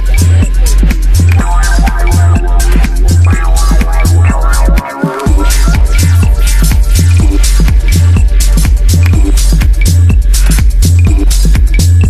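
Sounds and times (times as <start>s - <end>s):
techno music with heavy bassline: 0.0s - 12.0s.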